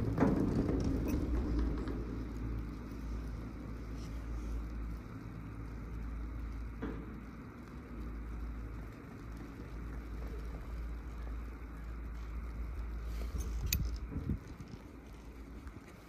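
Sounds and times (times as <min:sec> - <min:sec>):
chairlift rumbling: 0:00.0 - 0:16.0
wind on microphone: 0:13.0 - 0:15.6.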